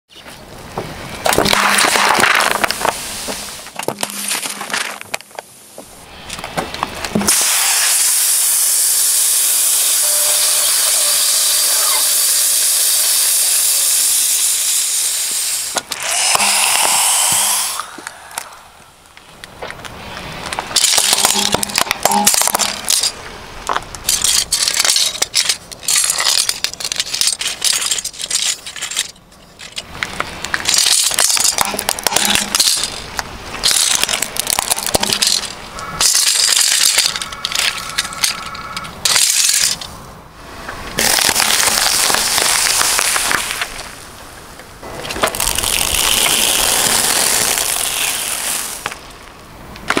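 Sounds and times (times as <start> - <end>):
plastic cracking under car tyre: 1.2 - 3.0, 40.9 - 44.0, 45.0 - 49.2.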